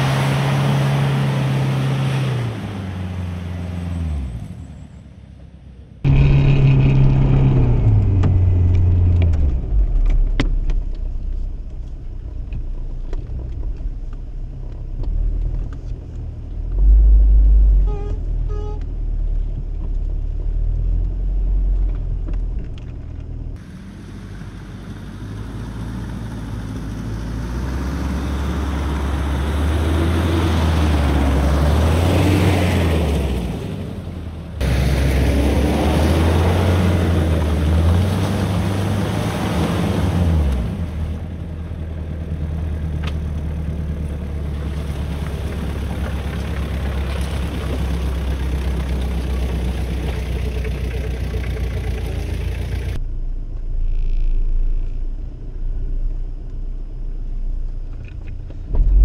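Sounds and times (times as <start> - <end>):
diesel engine working off road: 0.0 - 59.0.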